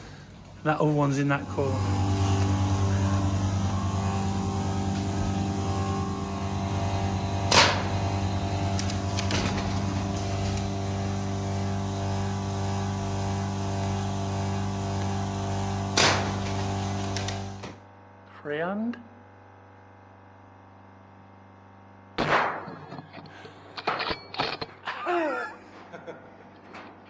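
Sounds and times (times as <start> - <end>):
low machinery hum: 0.0 - 18.3
sharp cracks: 7.5 - 8.0, 16.0 - 17.8.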